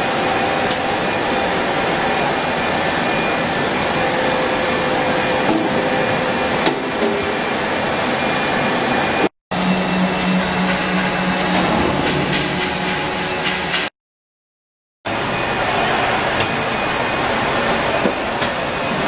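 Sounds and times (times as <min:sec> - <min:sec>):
factory machinery running: 0:00.0 - 0:13.9, 0:15.1 - 0:19.0
machine hum: 0:00.0 - 0:13.9, 0:15.1 - 0:19.0.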